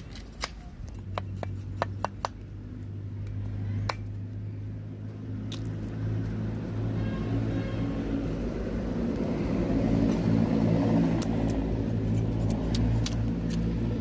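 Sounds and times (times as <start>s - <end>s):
cleaver cutting bamboo shoots: 0.0s - 2.4s, 9.9s - 14.0s.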